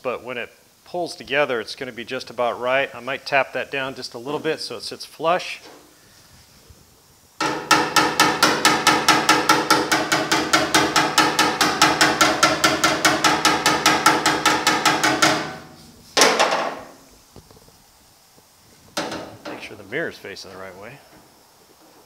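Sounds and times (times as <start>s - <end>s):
hammer tapping sheet metal: 7.4s - 17.0s, 19.0s - 19.7s.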